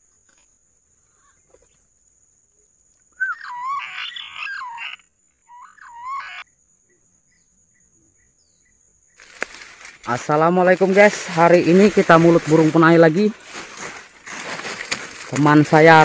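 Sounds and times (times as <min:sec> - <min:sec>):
high insect whine: 0:00.0 - 0:16.0
pigeons warbling whistled calls: 0:03.2 - 0:06.4.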